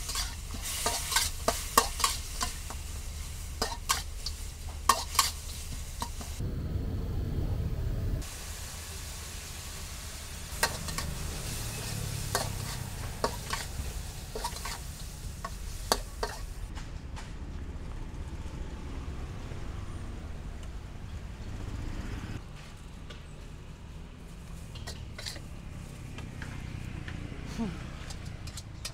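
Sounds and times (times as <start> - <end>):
food sizzling: 0.0 - 6.4, 8.2 - 16.7
spatula scraping a wok: 0.0 - 6.4, 9.9 - 16.6, 24.8 - 25.5
low rumble: 6.4 - 8.2.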